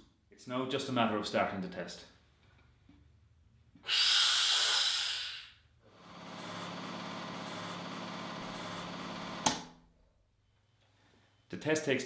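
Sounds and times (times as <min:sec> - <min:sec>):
compressed air hissing: 0:03.8 - 0:05.7.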